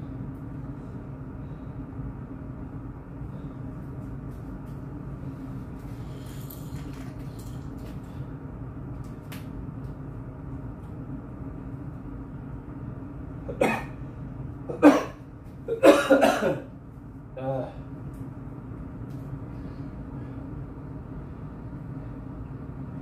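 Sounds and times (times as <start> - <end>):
steady low hum: 0.0 - 23.0
man coughing: 13.5 - 14.0, 14.7 - 16.7.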